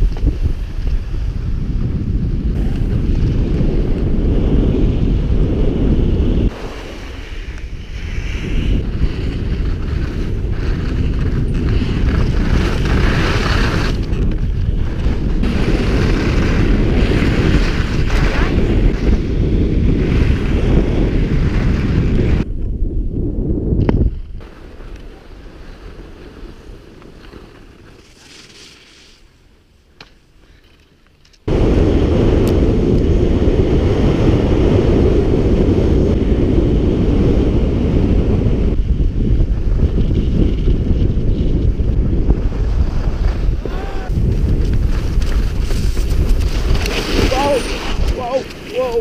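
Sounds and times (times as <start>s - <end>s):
skis scraping over snow: 0.0s - 22.5s, 24.4s - 29.6s, 39.4s - 49.0s
wind buffeting microphone: 0.0s - 26.9s, 31.5s - 49.0s.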